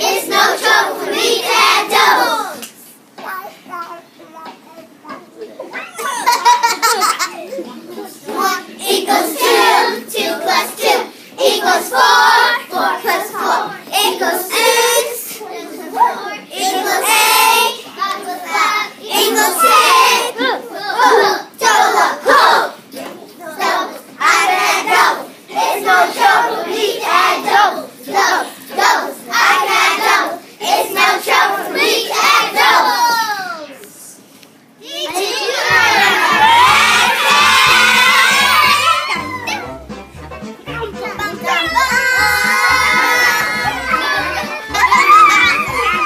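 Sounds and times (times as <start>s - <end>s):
children singing: 0.0s - 2.6s, 8.2s - 33.3s, 35.2s - 39.7s, 41.2s - 46.0s.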